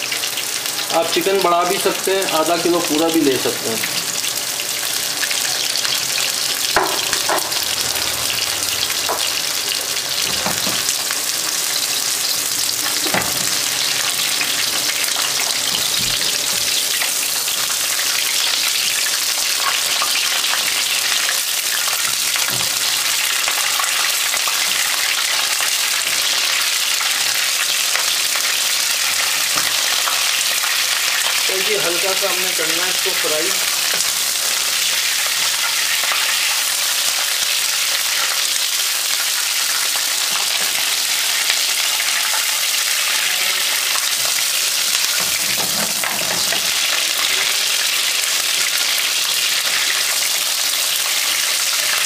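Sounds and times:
chicken sizzling in oil: 0.0 - 52.0
spatula knocks in pan: 6.8 - 7.6.

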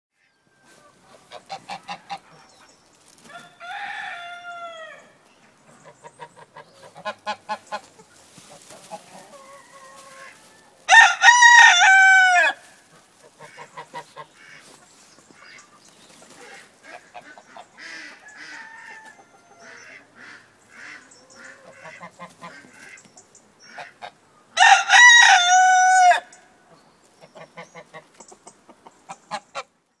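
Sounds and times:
hens and geese clucking: 0.2 - 29.8
rooster crowing: 3.3 - 5.2, 9.2 - 12.6, 18.2 - 19.7, 24.6 - 26.4.

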